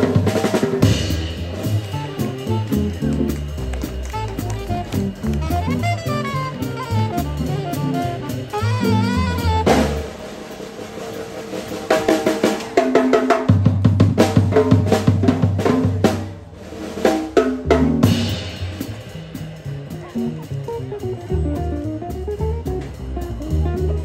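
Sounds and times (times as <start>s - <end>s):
double bass notes: 0.0s - 10.2s, 15.1s - 24.0s
drum kit solo: 0.0s - 24.0s
trumpet: 1.1s - 10.6s
saxophone: 1.6s - 10.2s.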